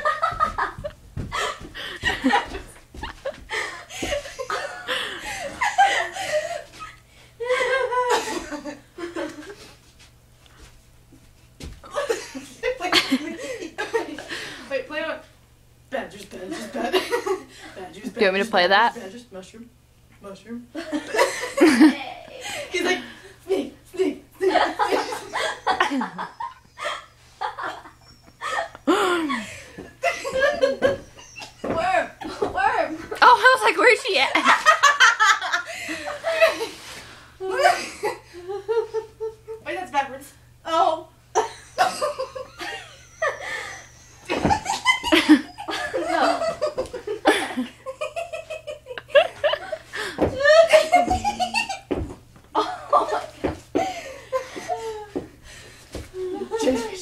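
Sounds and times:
people laughing: 0:00.0 - 0:09.7, 0:11.9 - 0:14.6, 0:16.5 - 0:17.7, 0:20.8 - 0:23.2, 0:24.4 - 0:36.8, 0:37.4 - 0:39.6, 0:41.4 - 0:52.0, 0:52.6 - 0:55.2.

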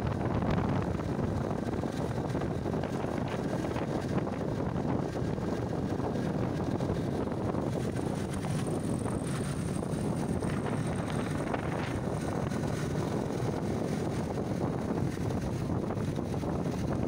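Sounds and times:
motorcycle engine running: 0:00.0 - 0:17.0
wind rush on microphone: 0:00.0 - 0:17.0.

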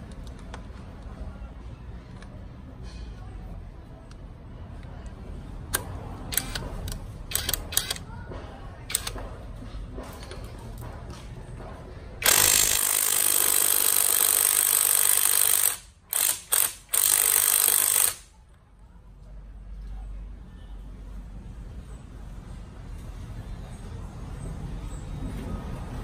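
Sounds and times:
impact wrench hammering: 0:12.2 - 0:18.3.

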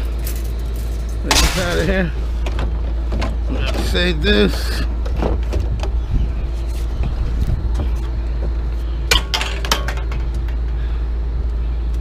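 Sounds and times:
steady low rumble: 0:00.0 - 0:12.0
aluminum scrap clanking: 0:01.3 - 0:04.0, 0:09.1 - 0:10.6.

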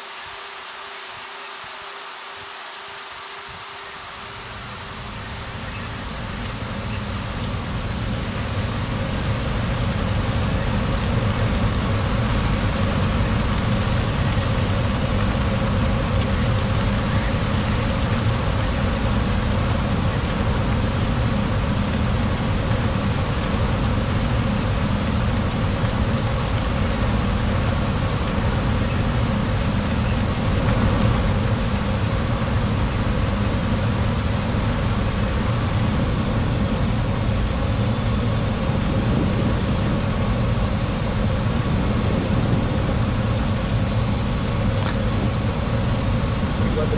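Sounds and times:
airflow and engine noise: 0:00.0 - 0:46.9.

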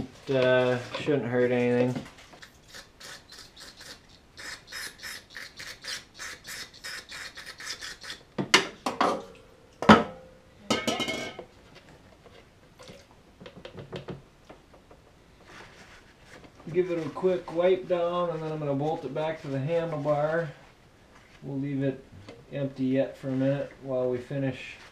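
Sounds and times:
knocks and clatters: 0:13.2 - 0:15.5.

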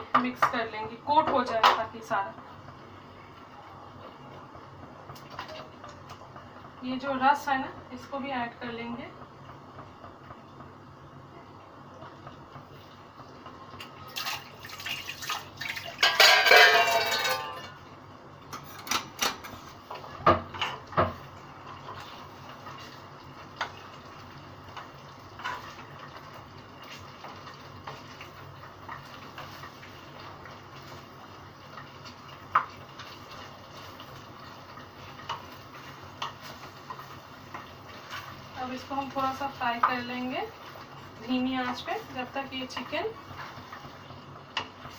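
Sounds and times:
spoon scraping in frying pan: 0:24.7 - 0:26.0.

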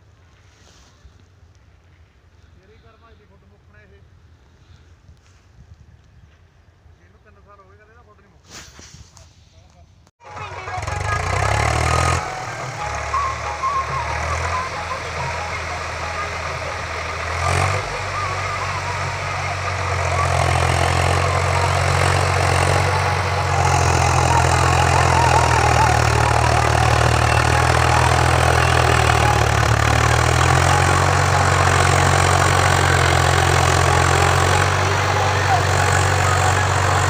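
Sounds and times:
tractor diesel engine running: 0:10.2 - 0:37.0.

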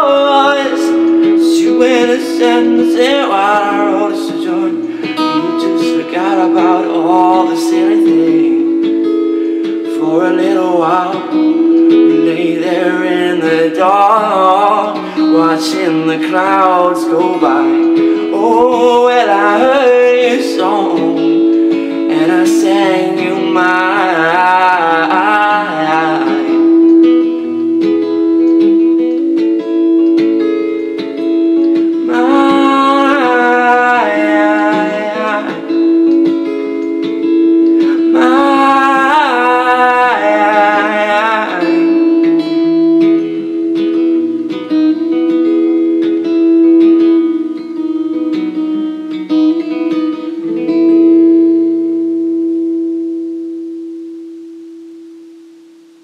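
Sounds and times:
man singing: 0:00.0 - 0:09.1, 0:09.7 - 0:27.6, 0:31.8 - 0:43.5
acoustic guitar playing: 0:00.0 - 0:56.0.

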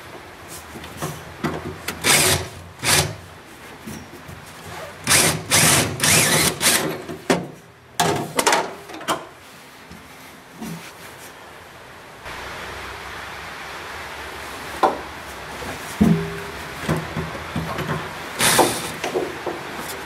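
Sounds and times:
cordless drill boring into steel: 0:02.0 - 0:03.1, 0:05.1 - 0:06.8.

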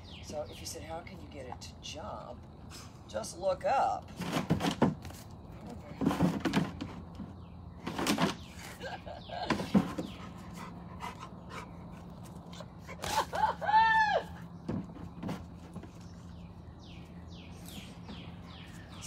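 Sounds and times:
dog panting: 0:10.0 - 0:13.0.

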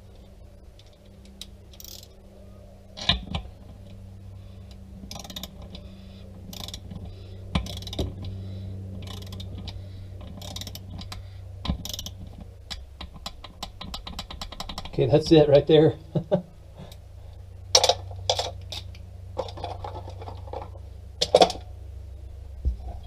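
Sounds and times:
steady low hum: 0:00.0 - 0:23.0
torque wrench ratcheting clicks: 0:00.8 - 0:02.1, 0:05.1 - 0:05.8, 0:06.5 - 0:07.0, 0:07.6 - 0:08.4, 0:09.0 - 0:15.0.

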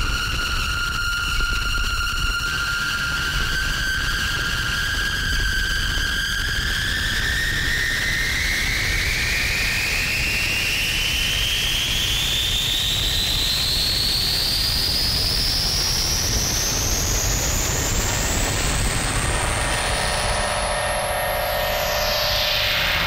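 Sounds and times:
low noise drone: 0:15.1 - 0:23.0
high whistling tone rising: 0:17.7 - 0:23.0.

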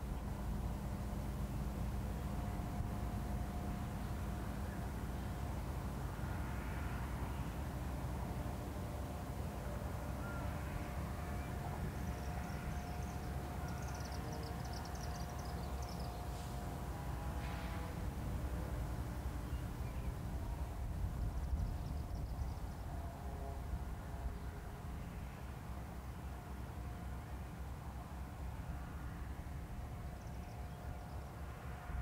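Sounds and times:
faint steady hum: 0:00.0 - 0:32.0
wind buffeting microphone: 0:20.1 - 0:23.0.

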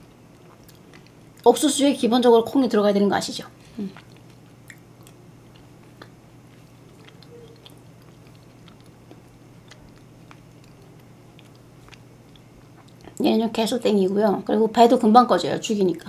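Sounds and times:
quiet chewing: 0:00.0 - 0:01.6, 0:03.6 - 0:13.3
low steady hum: 0:00.0 - 0:16.0.

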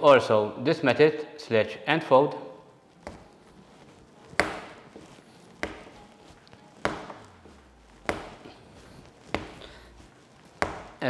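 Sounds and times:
dough slapped onto counter: 0:10.6 - 0:11.0.

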